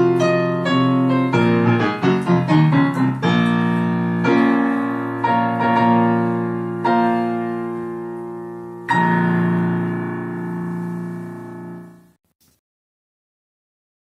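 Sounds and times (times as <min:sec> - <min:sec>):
digital piano chords: 0:00.0 - 0:12.2.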